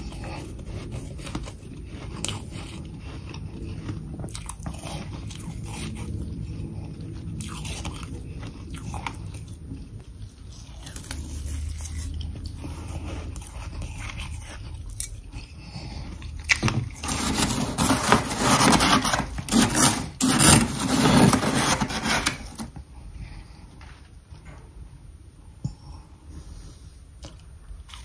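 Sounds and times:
metal spoon scraping frost: 17.0 - 22.7.

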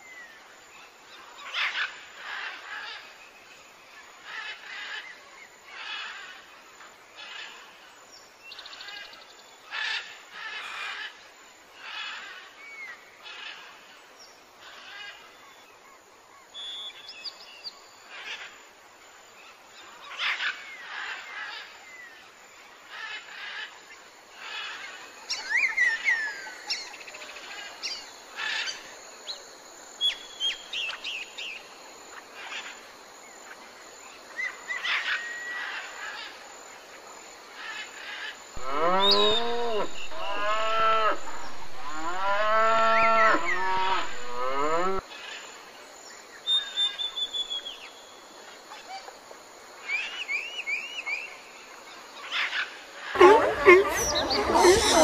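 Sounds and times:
birds chirping and singing: 38.6 - 45.0, 53.1 - 55.0
cow mooing: 38.6 - 45.0.

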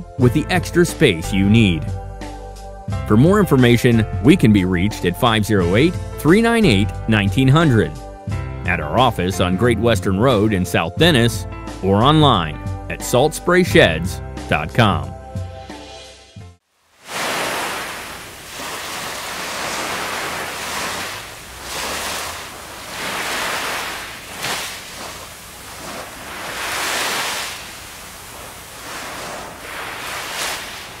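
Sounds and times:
waves washing on sand: 17.0 - 31.0.

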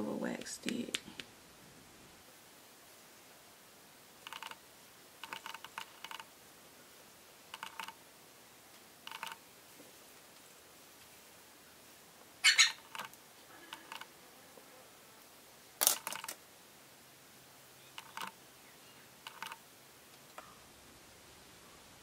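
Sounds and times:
comb clicks and scrapes: 5.2 - 6.3, 12.9 - 14.1, 15.8 - 16.4, 18.0 - 18.4, 19.2 - 19.6.

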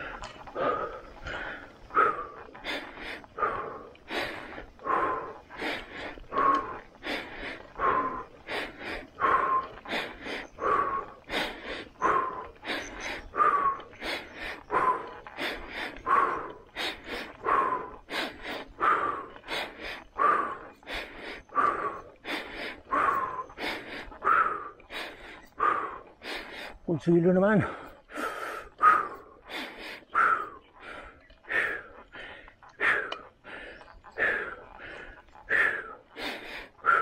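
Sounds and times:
heavy labored breathing: 0.0 - 37.0.

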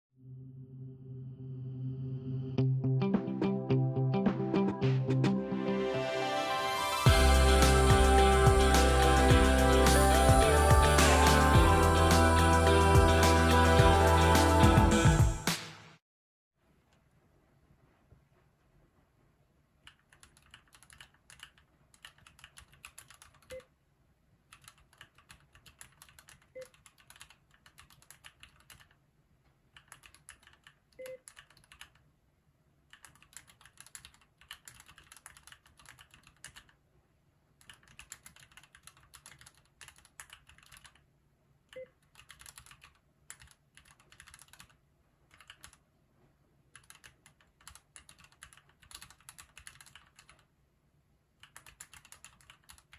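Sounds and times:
fast typing on mechanical keyboard: 19.8 - 23.6, 24.5 - 29.0, 29.7 - 32.0, 32.9 - 36.8, 37.6 - 41.0, 42.0 - 45.8, 46.7 - 50.5, 51.4 - 52.9.

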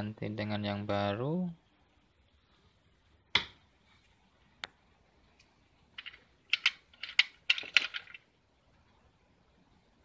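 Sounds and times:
small parts clicking and rattling: 5.9 - 8.3.

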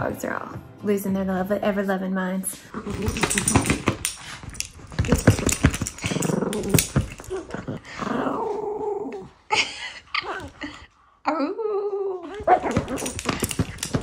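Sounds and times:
dog growling in play: 2.7 - 3.9, 5.0 - 9.4
clicks and rustles: 2.8 - 7.8, 12.4 - 14.0.

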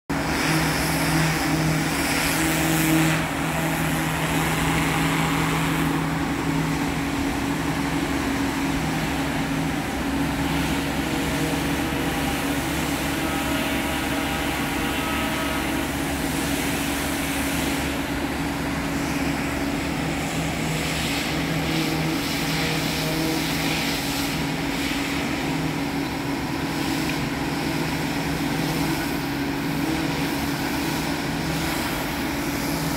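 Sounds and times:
steady engine hum: 0.1 - 32.9.

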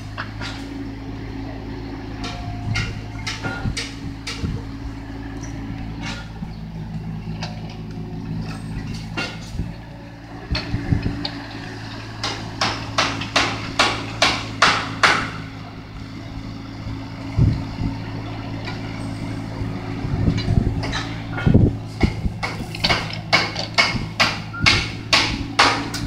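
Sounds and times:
excavator diesel engine running: 0.0 - 26.0
sharp knocks: 12.2 - 15.5, 20.8 - 26.0.

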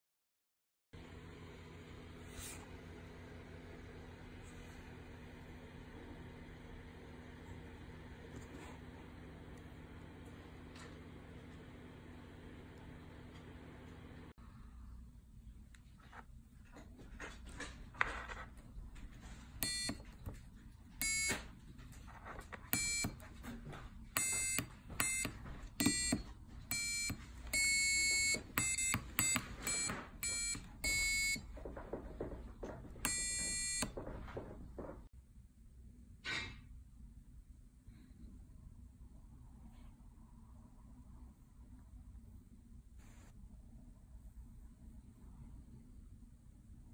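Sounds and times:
piezo buzzer beeping: 19.6 - 20.1, 21.0 - 21.5, 22.7 - 23.3, 24.2 - 31.5, 33.0 - 34.0.

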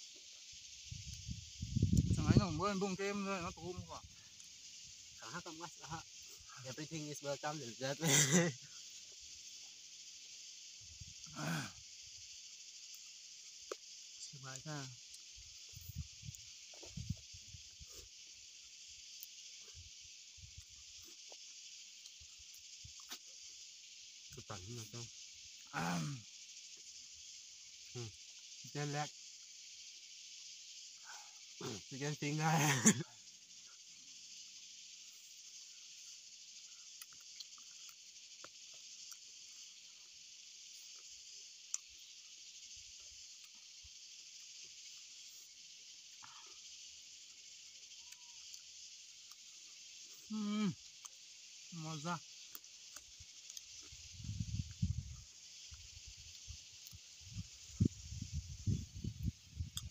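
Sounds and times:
faint high hiss: 0.0 - 59.9
eating and chewing: 35.9 - 40.2, 48.1 - 51.5, 52.2 - 54.0
chewing and eating clicks: 36.9 - 39.2.

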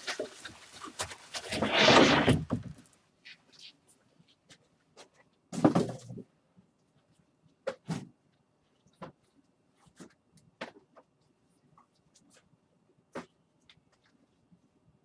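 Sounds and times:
scraping rustle: 0.0 - 2.9.

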